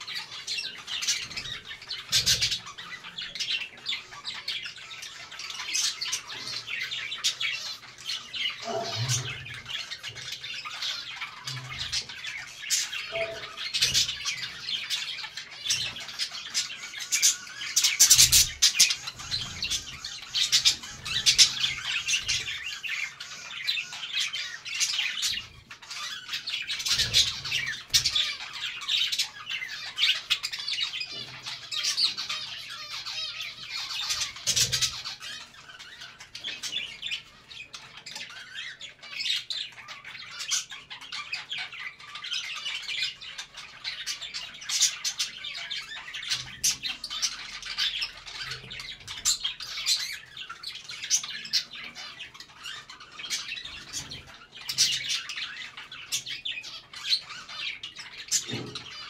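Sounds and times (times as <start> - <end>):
budgerigars chattering and chirping: 0.0 - 59.0.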